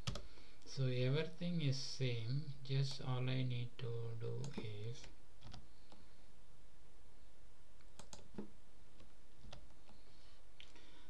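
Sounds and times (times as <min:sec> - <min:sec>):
keyboard and mouse clicks: 0:00.0 - 0:00.3, 0:04.4 - 0:06.0, 0:07.8 - 0:10.0
faint background hiss: 0:00.0 - 0:11.0.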